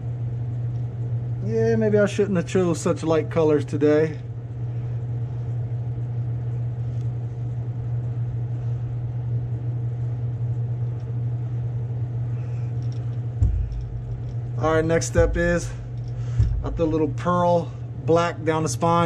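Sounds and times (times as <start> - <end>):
exhaust fan humming: 0.0 - 19.0
low thump: 13.4 - 17.0.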